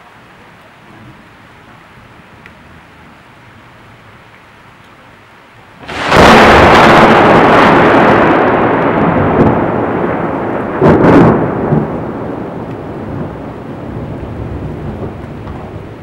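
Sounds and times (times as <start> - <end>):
rolling thunder: 5.8 - 16.0
sharp thunder crack: 5.8 - 16.0.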